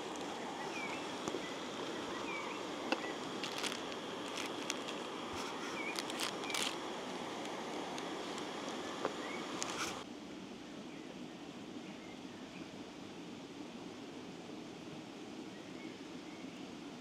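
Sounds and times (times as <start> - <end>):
wrapper crinkling and tearing: 0.0 - 10.0
steady hiss: 0.0 - 17.0.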